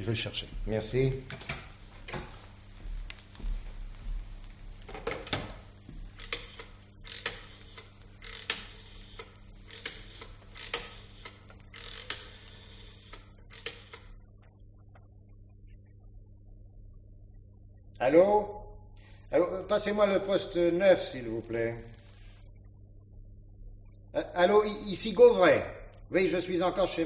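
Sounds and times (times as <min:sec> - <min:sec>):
rotary phone dial clicking: 0:06.2 - 0:14.2.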